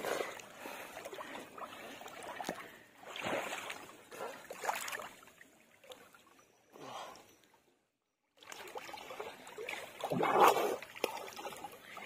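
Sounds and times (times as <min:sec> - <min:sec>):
water sloshing and splashing: 0:00.0 - 0:06.5, 0:08.4 - 0:12.0.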